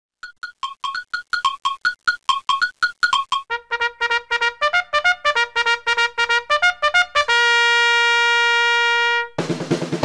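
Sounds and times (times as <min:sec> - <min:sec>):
brass fanfare: 0:03.5 - 0:10.0.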